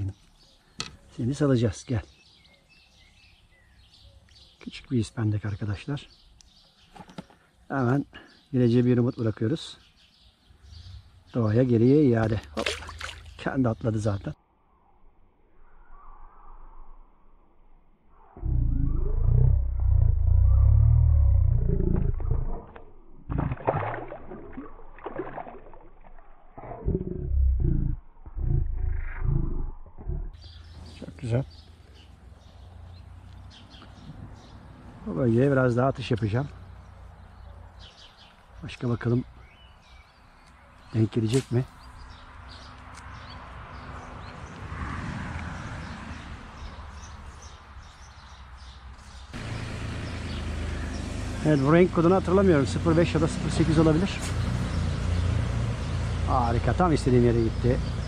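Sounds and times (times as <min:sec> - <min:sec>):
faint bird chirps: 0:00.0 - 0:12.1, 0:13.2 - 0:19.8
hands splashing in water: 0:12.2 - 0:13.4, 0:23.3 - 0:26.6
low rumble on microphone: 0:18.2 - 0:23.7, 0:26.6 - 0:30.9
low steady rumble: 0:18.4 - 0:22.6.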